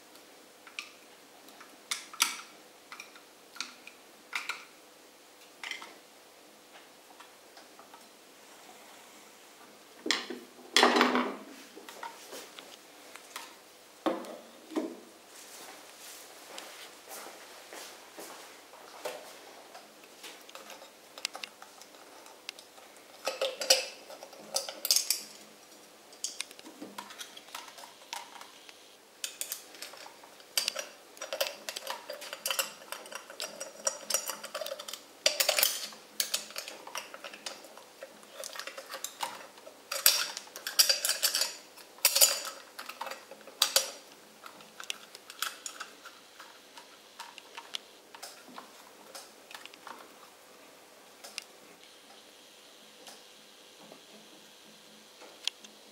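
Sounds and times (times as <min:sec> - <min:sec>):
metallic clinks and scrapes: 0:29.2 - 0:44.0.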